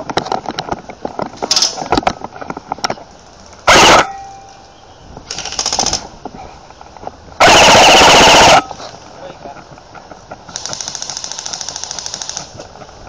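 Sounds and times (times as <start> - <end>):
airsoft rifle firing bursts: 5.3 - 6.0, 7.4 - 8.7, 10.5 - 12.5.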